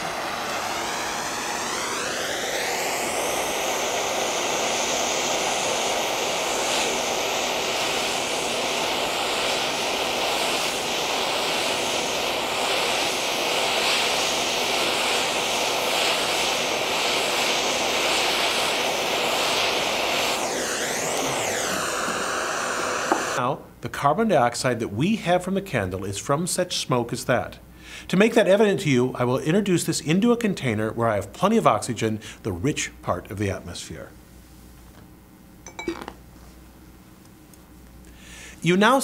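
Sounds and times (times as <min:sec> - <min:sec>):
blowtorch flame hissing: 0:00.0 - 0:23.4.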